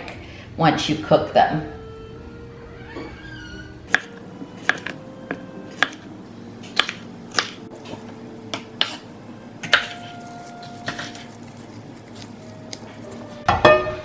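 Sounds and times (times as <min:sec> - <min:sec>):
knife tapping wooden board: 0:03.9 - 0:06.0, 0:06.7 - 0:07.6.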